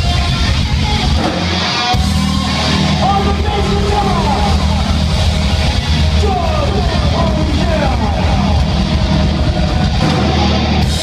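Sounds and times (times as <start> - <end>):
bass: 0.0 - 11.0
distorted electric guitars: 0.0 - 11.0
drums: 0.0 - 11.0.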